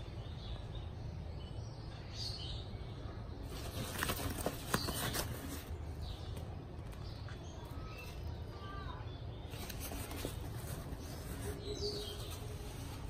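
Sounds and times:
faint bird chirps: 0:00.0 - 0:13.0
backpack fabric rustling: 0:03.5 - 0:05.7.

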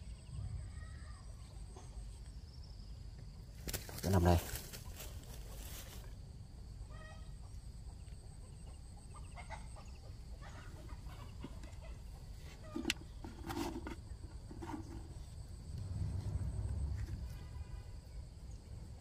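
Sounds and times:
chickens clucking: 0:07.2 - 0:15.2
low rumble: 0:15.3 - 0:18.8.

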